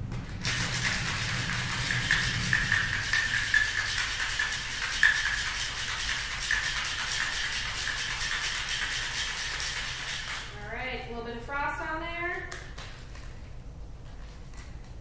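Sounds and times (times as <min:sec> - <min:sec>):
ice rattling in cocktail shaker: 0:00.4 - 0:10.6.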